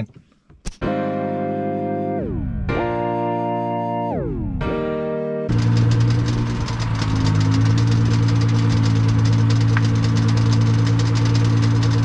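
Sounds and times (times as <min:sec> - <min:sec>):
car engine drone: 0:05.5 - 0:12.0
tyre and road noise: 0:05.5 - 0:12.0.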